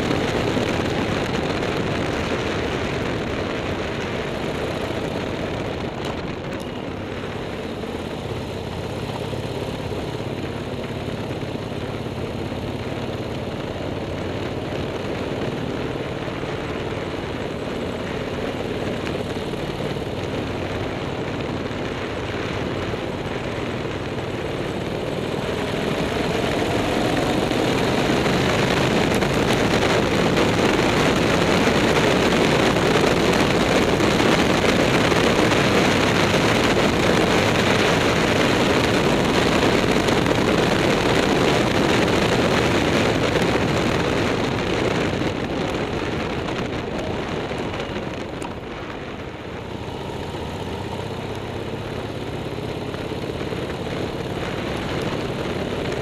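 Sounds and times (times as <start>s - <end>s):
vehicle engine running under load: 0.0s - 56.0s.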